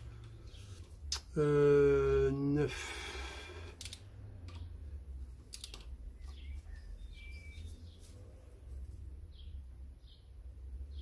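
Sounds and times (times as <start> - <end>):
bird chirps: 6.1 - 8.4.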